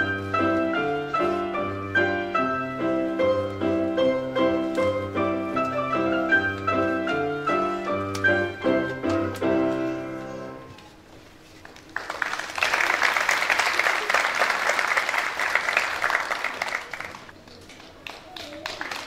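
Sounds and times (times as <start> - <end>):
grand piano chords: 0.0 - 10.8
audience applauding: 11.6 - 19.0.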